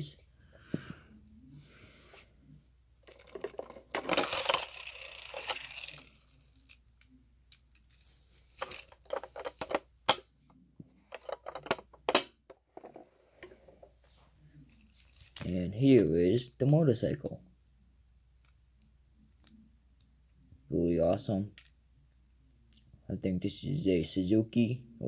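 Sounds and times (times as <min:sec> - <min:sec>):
plastic toy scraping rustle: 0:03.1 - 0:06.3.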